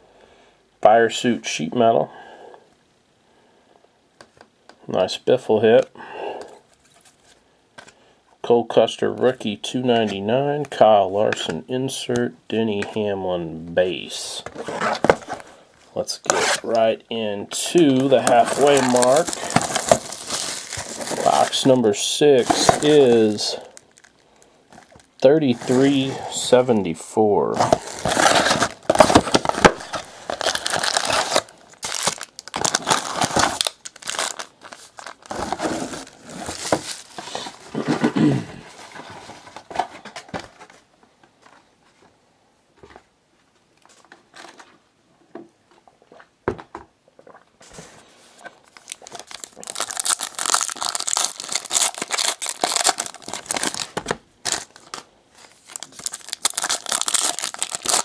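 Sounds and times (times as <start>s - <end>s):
foil packs crinkling and tearing: 17.6s - 26.4s, 27.6s - 37.8s, 48.6s - 58.0s.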